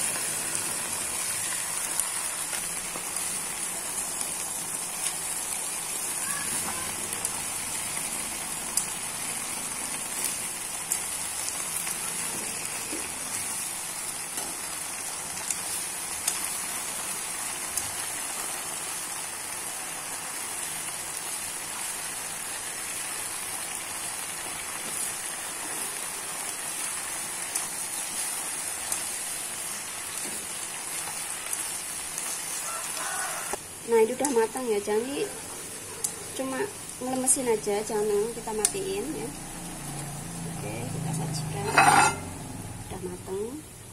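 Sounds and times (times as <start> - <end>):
greens sizzling in hot oil: 0.0 - 43.9
chopsticks clicking against pan: 34.2 - 34.4.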